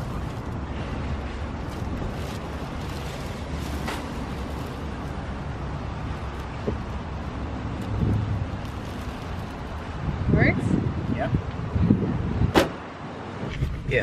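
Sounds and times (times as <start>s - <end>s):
traffic rumble: 0.0s - 14.0s
wind: 0.0s - 14.0s
knocks and rustles in car trunk: 12.5s - 12.8s.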